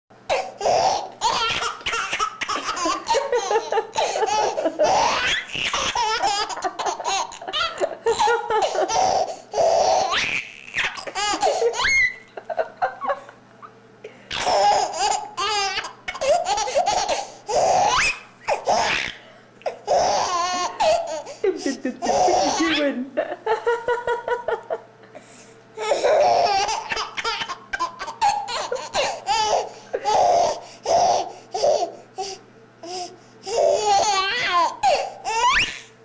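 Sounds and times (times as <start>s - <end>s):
baby laughing and squealing: 0.3s - 12.3s, 14.3s - 19.2s, 19.9s - 21.4s, 22.0s - 22.8s, 25.8s - 32.0s, 32.8s - 35.9s.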